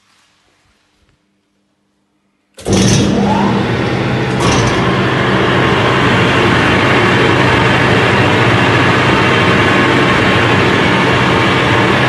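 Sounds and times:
meat grinder running: 0:02.6 - 0:12.0.

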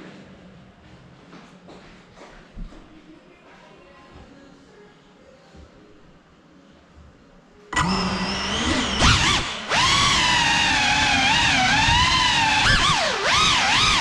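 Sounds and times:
quadcopter motors whining: 0:07.8 - 0:14.0.

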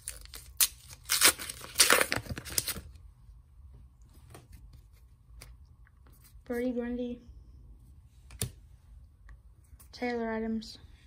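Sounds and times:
card pack wrapper tearing and crinkling: 0:00.0 - 0:03.0.

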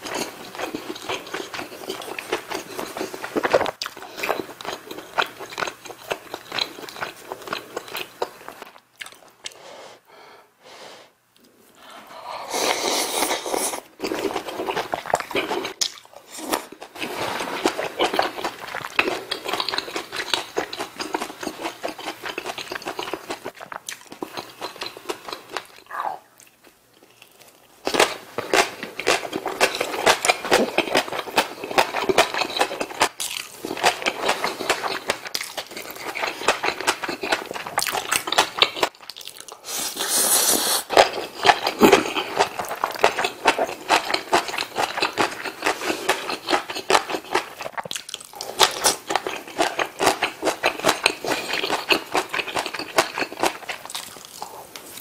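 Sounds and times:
wet chewing: 0:14.0 - 0:39.7, 0:40.9 - 0:55.0.

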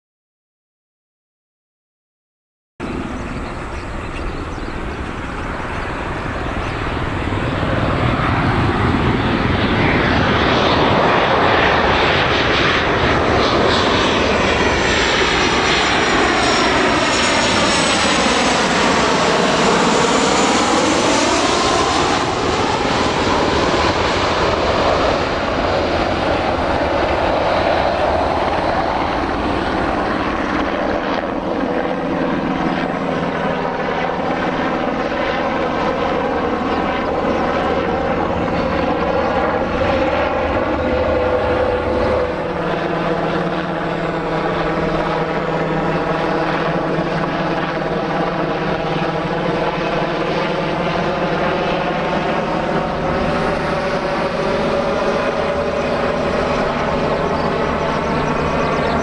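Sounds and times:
jet engine roar with whine: 0:02.8 - 0:59.0.

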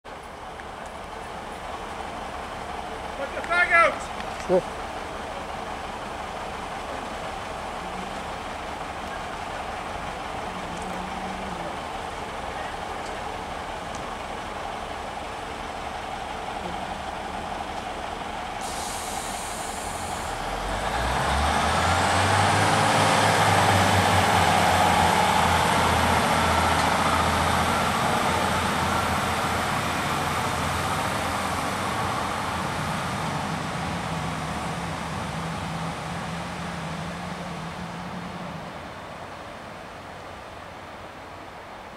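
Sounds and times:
diesel train engine: 0:00.1 - 0:41.9
rising train whine: 0:00.1 - 0:41.9
train air hiss: 0:18.5 - 0:20.5.

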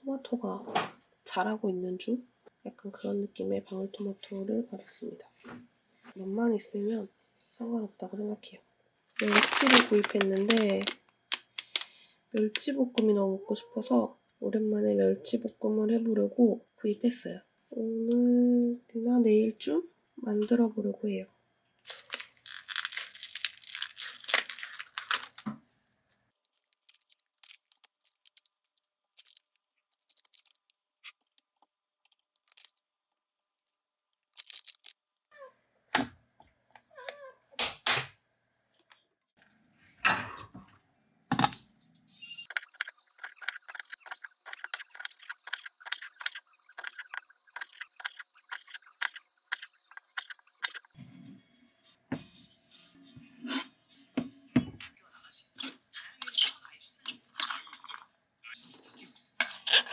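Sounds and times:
plastic pouch crinkling: 0:09.2 - 0:11.9, 0:21.9 - 0:25.5, 0:26.3 - 0:35.0, 0:42.5 - 0:51.0.

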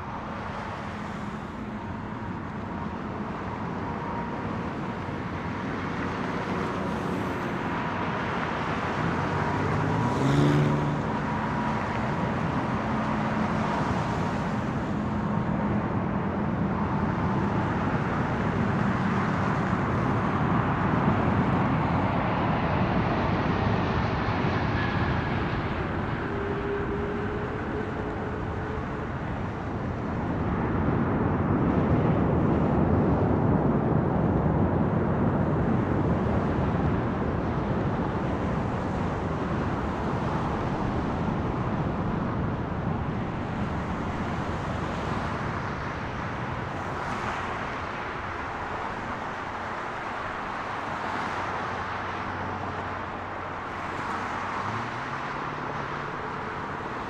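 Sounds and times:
jet engine roar: 0:00.0 - 0:57.0.

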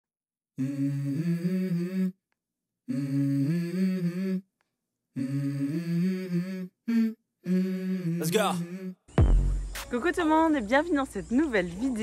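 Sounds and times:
person humming a tune: 0:00.6 - 0:02.2, 0:02.9 - 0:04.5, 0:05.2 - 0:09.2.

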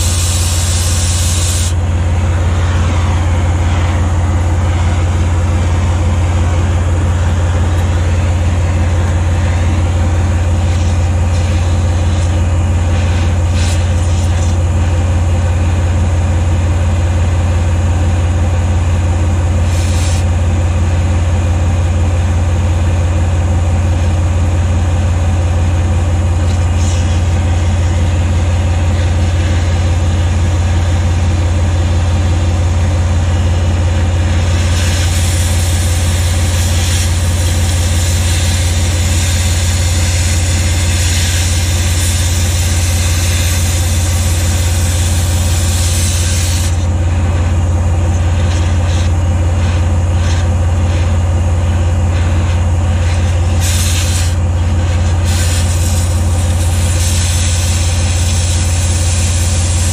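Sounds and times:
cutting torch hissing: 0:00.0 - 0:14.6, 0:19.6 - 0:20.3, 0:34.4 - 0:47.0, 0:52.0 - 0:59.9
engine idling: 0:00.0 - 0:59.9.

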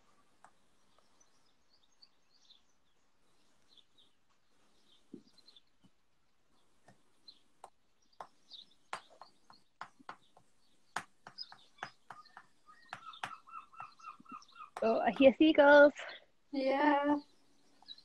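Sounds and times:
faint bird chirping: 0:00.0 - 0:18.0
sharp clicks and taps: 0:07.6 - 0:15.4
seagull calling: 0:11.4 - 0:15.0.

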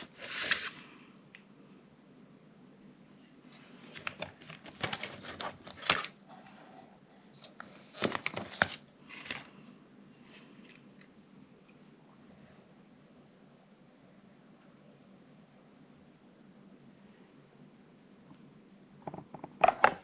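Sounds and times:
plastic cups crinkling and clicking: 0:03.8 - 0:06.2, 0:07.4 - 0:09.6.

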